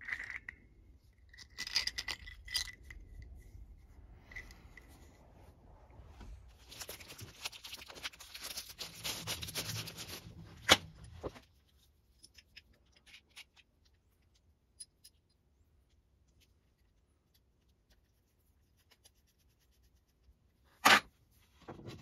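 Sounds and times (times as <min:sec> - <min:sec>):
hands rustling and crinkling: 0:03.2 - 0:11.9.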